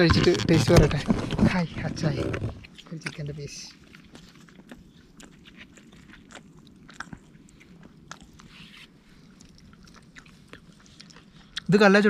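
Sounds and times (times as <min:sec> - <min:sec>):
person chewing crunchy chicken: 0:02.1 - 0:11.7.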